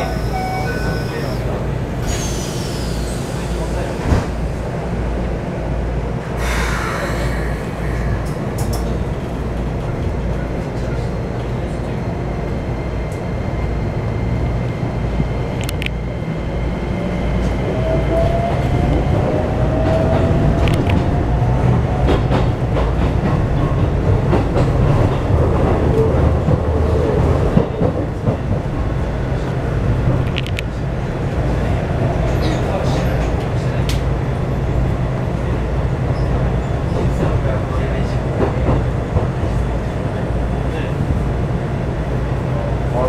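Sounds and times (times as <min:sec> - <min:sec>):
train running rumble: 0:00.0 - 0:43.0.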